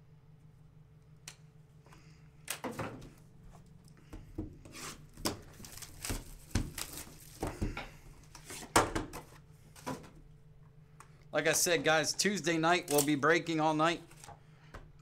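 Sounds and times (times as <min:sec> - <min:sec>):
plastic wrap tearing and crinkling: 0:05.4 - 0:07.4.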